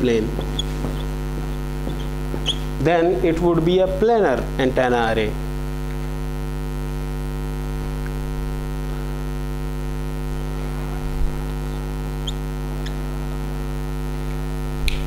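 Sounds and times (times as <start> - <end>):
electrical mains hum: 0.0 - 15.0
marker squeaking on whiteboard: 0.4 - 2.8, 11.6 - 13.2.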